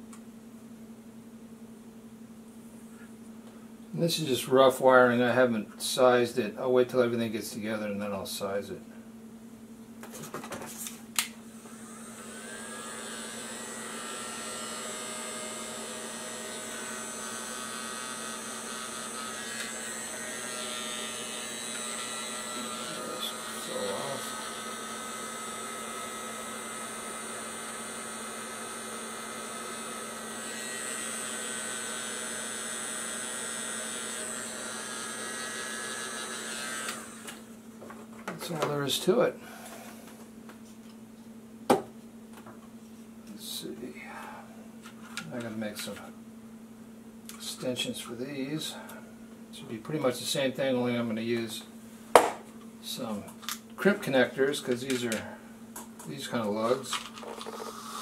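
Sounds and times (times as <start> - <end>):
heat gun fan hum: 2.0 - 58.0.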